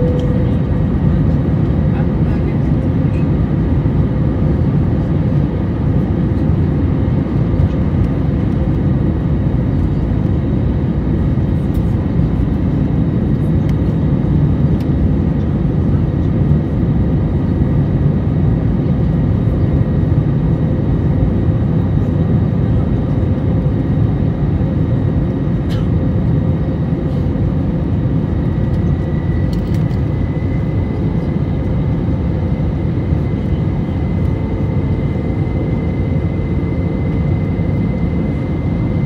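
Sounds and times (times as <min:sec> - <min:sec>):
faint high whine: 0:00.0 - 0:00.8
jet engine rumble: 0:00.0 - 0:39.0.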